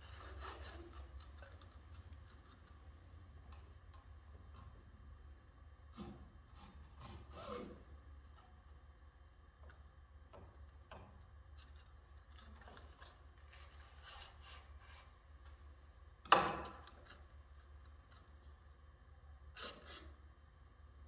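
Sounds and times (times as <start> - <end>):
parts rubbing and scraping: 0.0 - 3.5
steady low hum: 0.0 - 21.0.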